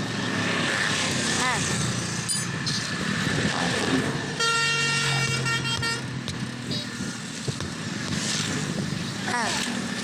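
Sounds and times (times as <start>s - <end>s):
road noise: 0.0s - 10.0s
vehicle horn honking: 4.4s - 6.1s.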